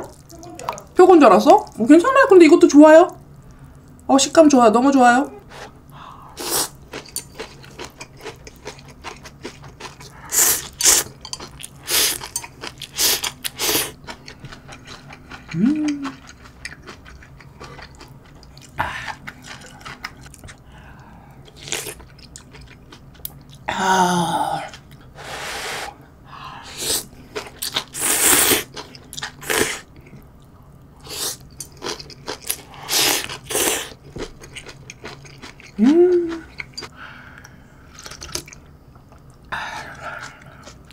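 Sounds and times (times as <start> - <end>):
chewing: 6.7 - 20.7, 31.0 - 40.9.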